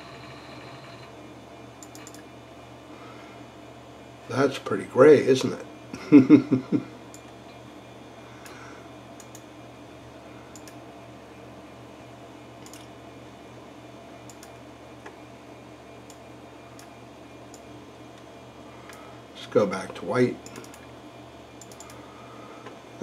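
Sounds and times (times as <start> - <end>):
computer humming: 0.0 - 23.0
faint mouse clicks: 21.6 - 22.0.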